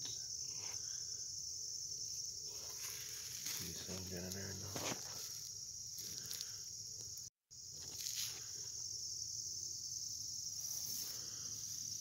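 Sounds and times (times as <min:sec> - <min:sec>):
high-pitched insect chorus: 0:00.0 - 0:12.0.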